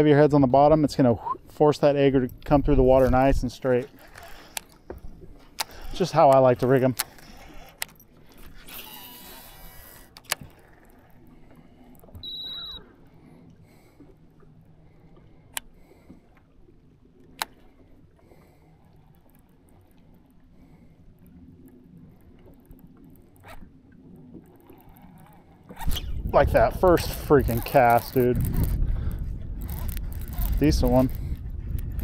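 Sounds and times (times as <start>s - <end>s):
fishing reel reeling with clicks: 3.0s - 12.9s, 17.2s - 17.7s, 22.4s - 23.7s, 24.4s - 32.0s
fishing reel spool whirring: 3.8s - 4.8s, 5.4s - 13.3s, 21.0s - 32.0s
short high electronic beep: 12.2s - 12.8s.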